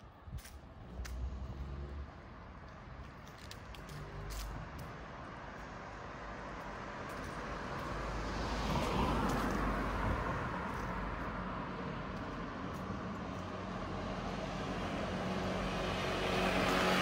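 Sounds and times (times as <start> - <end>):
background traffic: 0.0 - 17.0
vehicle passing by: 0.8 - 2.3, 7.2 - 17.0.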